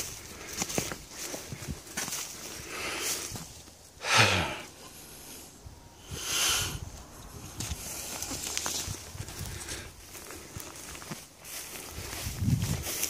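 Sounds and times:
footsteps through dry grass: 0:00.0 - 0:04.0, 0:06.8 - 0:13.0.

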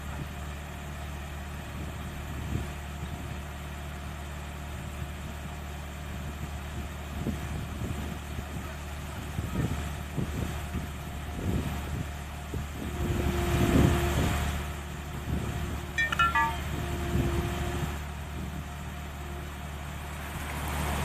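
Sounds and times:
descending high chirps: 0:16.0 - 0:16.8.

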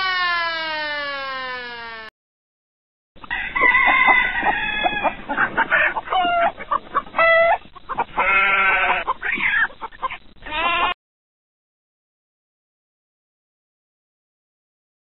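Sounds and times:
chickens clucking and squawking: 0:03.2 - 0:11.0.

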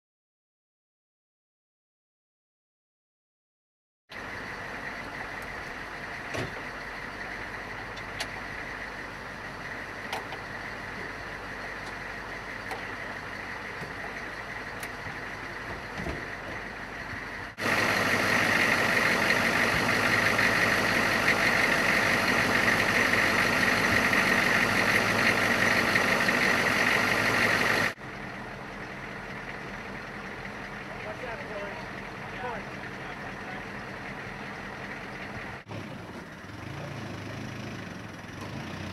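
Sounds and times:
diesel engine idling: 0:04.1 - 0:38.9.

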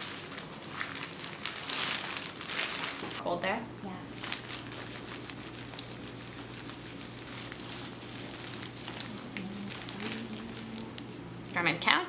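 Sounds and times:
paper and plastic rustling: 0:00.0 - 0:03.2, 0:04.1 - 0:11.1
low hum: 0:05.2 - 0:11.6.

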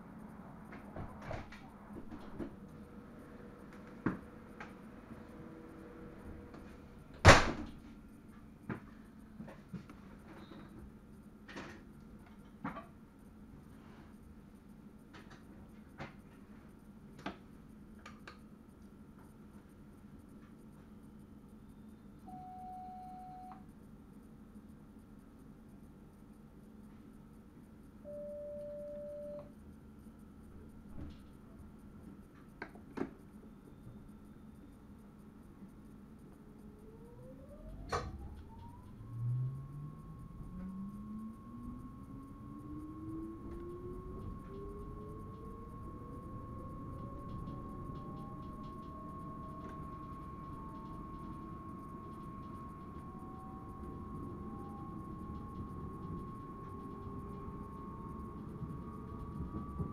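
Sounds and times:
low hum of running train: 0:00.0 - 0:59.9
electronic beep: 0:22.3 - 0:23.6, 0:28.1 - 0:29.5.

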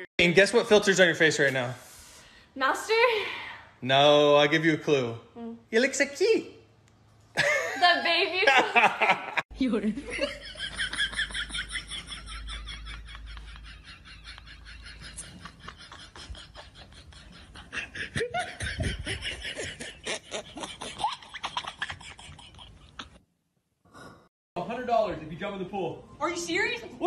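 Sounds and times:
people laughing hard: 0:10.2 - 0:23.2.

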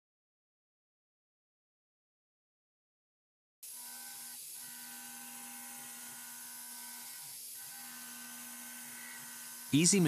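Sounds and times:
mill spindle whine and hum: 0:03.7 - 0:10.0.

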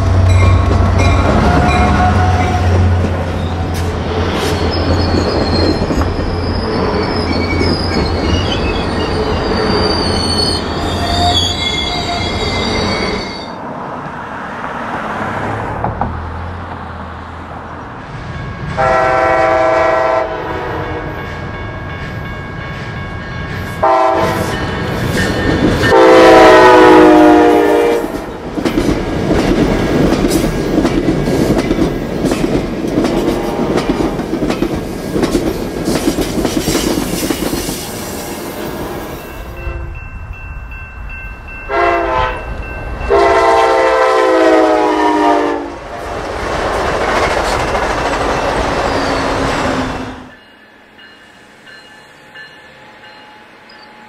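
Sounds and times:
train rumbling past: 0:00.0 - 0:54.0
train air horn blasts: 0:00.1 - 0:03.0, 0:18.8 - 0:21.2, 0:23.8 - 0:24.6, 0:25.9 - 0:28.2, 0:41.7 - 0:42.5, 0:43.1 - 0:45.8.

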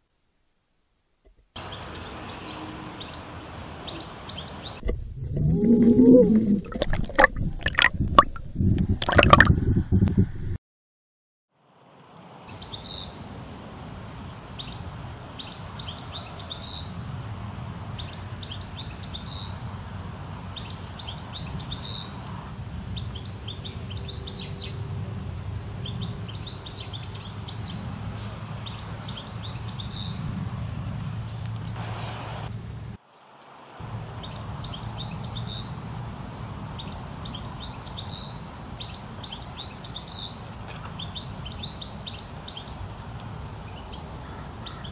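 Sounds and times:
songbird singing: 0:01.6 - 0:07.9, 0:12.5 - 0:13.2, 0:14.3 - 0:17.0, 0:17.9 - 0:19.7, 0:20.5 - 0:24.9, 0:25.6 - 0:30.3, 0:33.9 - 0:35.8, 0:36.7 - 0:44.9
low rumble of background noise: 0:11.6 - 0:44.9.

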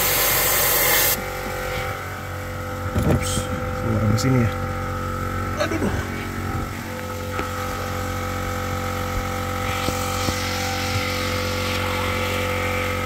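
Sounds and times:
spray gun air hissing: 0:00.0 - 0:01.2
air compressor humming: 0:00.0 - 0:13.0.

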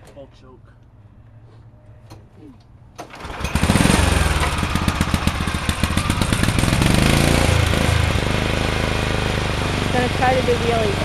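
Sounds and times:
small engine starting and revving: 0:03.1 - 0:11.0.

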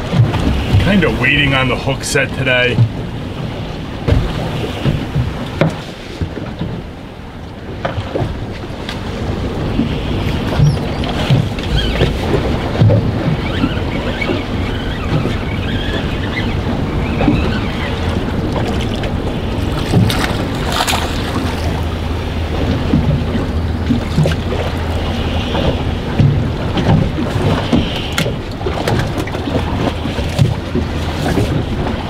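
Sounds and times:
waves slapping boat hull: 0:00.0 - 0:32.0
wind buffeting microphone: 0:00.0 - 0:32.0
fish splashing at surface: 0:19.6 - 0:21.9.

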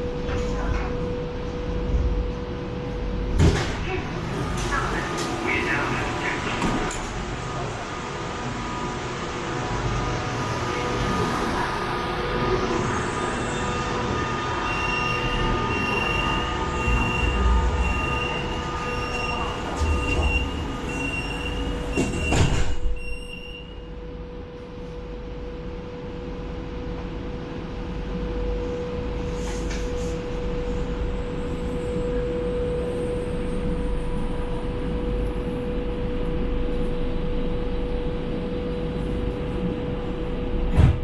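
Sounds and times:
train electric hum: 0:00.0 - 0:41.0
train doors shutting thud: 0:03.3 - 0:03.9, 0:21.3 - 0:23.0, 0:40.6 - 0:41.0
door-closing warning beeps: 0:14.6 - 0:23.8.

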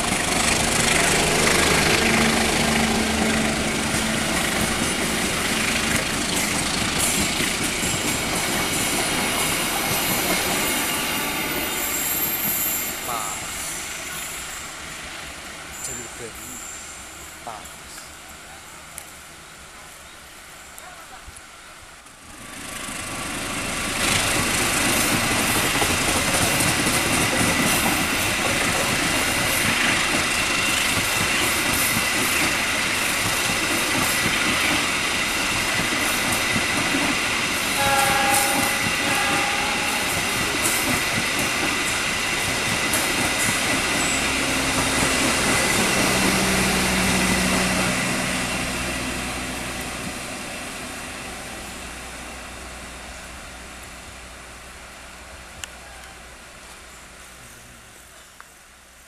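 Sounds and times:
train wheels clacking over rail joints: 0:00.0 - 0:11.9, 0:22.6 - 0:48.0
train rumble: 0:00.0 - 0:59.0
high wheel squeal: 0:09.6 - 0:14.8, 0:15.7 - 0:17.4.

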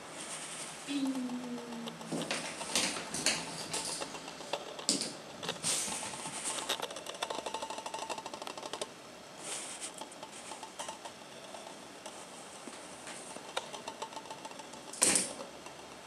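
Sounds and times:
kitten paws clicking on wood: 0:01.0 - 0:08.9.

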